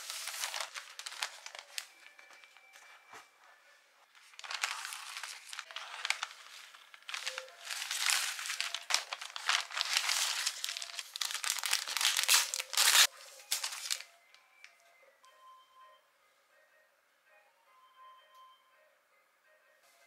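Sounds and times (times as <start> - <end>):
paper wrapping crinkling: 0.0 - 14.1.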